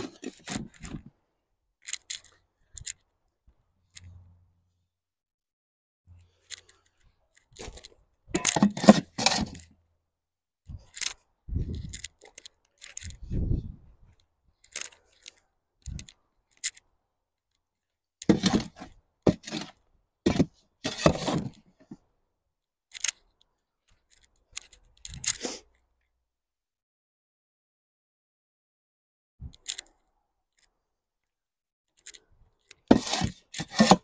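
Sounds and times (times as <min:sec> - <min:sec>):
shovel scraping sandy soil: 0:32.9 - 0:34.0.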